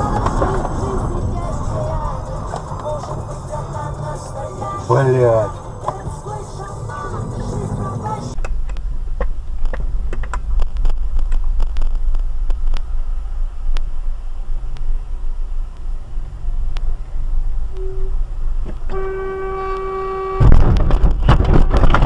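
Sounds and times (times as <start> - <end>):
car engine and road rumble: 0.0 - 22.0
car horn: 17.7 - 18.3, 18.9 - 20.7.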